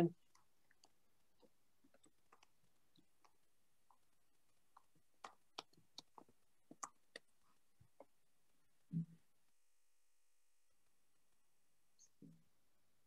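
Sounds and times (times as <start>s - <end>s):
faint irregular clicks: 0.2s - 9.6s.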